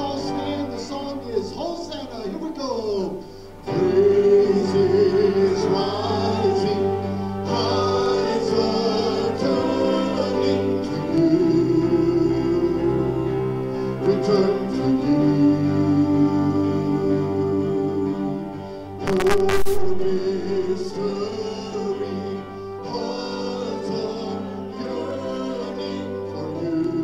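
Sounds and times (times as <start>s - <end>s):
voices singing a hymn: 0.0s - 19.1s, 20.0s - 27.0s
sustained instrumental chords: 19.0s - 23.2s.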